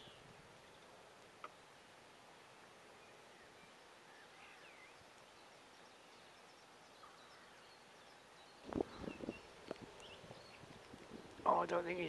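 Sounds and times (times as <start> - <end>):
faint outdoor hiss: 0.0 - 12.0
bird chirps: 2.9 - 10.7.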